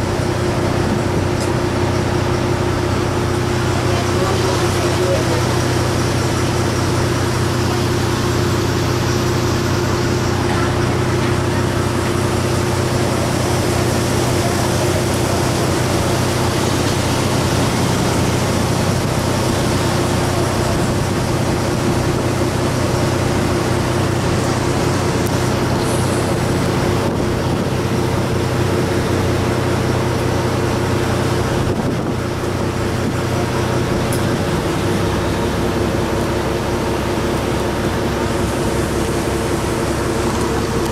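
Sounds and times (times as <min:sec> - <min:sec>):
ship engine humming: 0:00.0 - 0:40.9
wind on microphone: 0:31.4 - 0:33.4.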